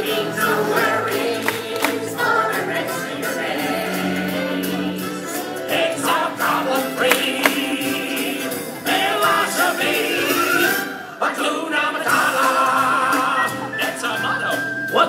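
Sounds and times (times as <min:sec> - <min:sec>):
choir singing: 0:00.0 - 0:14.2
stage show music: 0:00.0 - 0:15.0.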